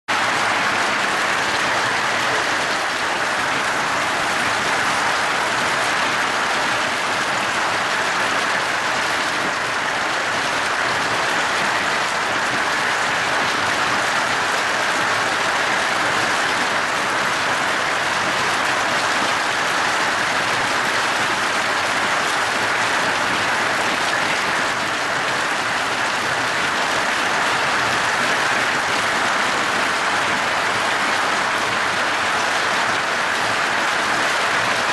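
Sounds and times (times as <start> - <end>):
hail and heavy rain on wood: 0.1 - 34.9.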